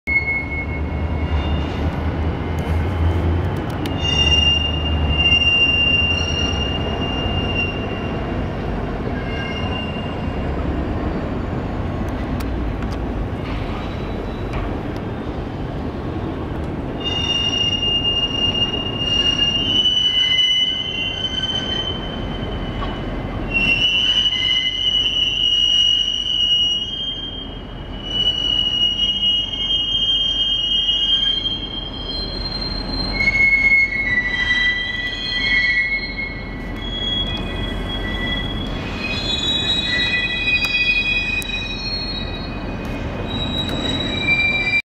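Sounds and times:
rail car wheels squealing: 0.1 - 44.8
rumble of rolling rail cars: 0.1 - 44.8.

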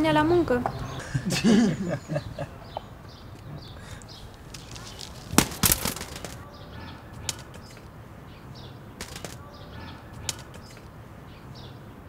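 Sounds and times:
bramble stem clicking and rustling: 4.0 - 6.4, 7.2 - 7.9, 9.0 - 9.4, 10.2 - 10.9.

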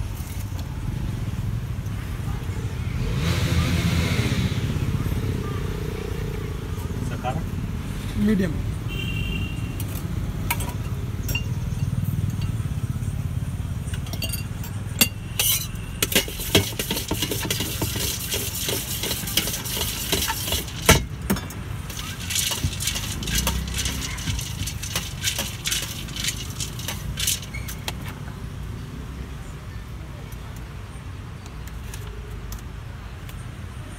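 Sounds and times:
snacks rattling in steel vessel: 13.9 - 28.2.

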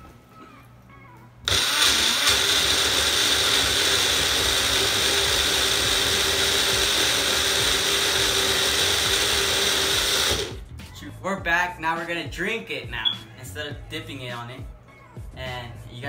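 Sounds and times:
blender motor whining: 1.5 - 10.6.

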